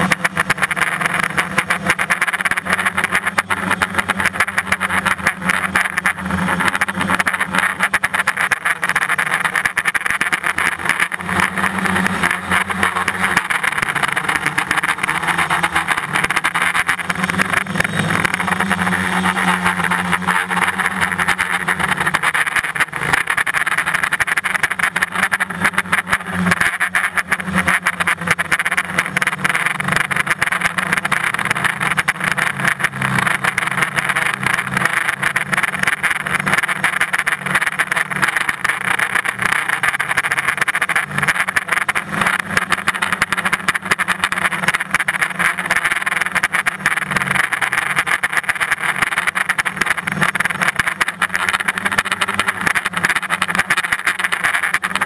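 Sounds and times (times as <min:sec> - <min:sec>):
drone propellers buzzing: 0:00.0 - 0:55.0.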